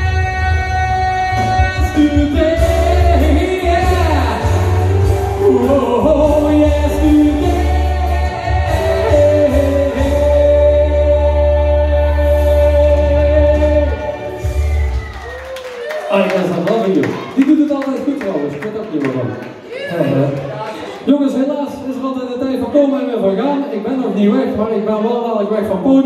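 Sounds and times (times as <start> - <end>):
song with singing and bass: 0.0 - 15.4.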